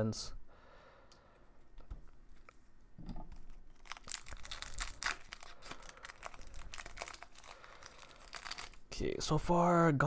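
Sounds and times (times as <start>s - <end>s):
foil wrapper tearing and crinkling: 3.4s - 8.9s.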